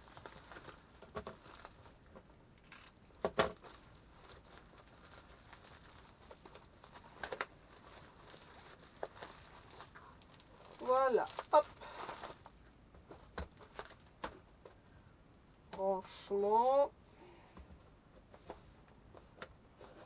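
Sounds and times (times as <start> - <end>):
plastic wrapping crinkling: 0.0 - 14.4.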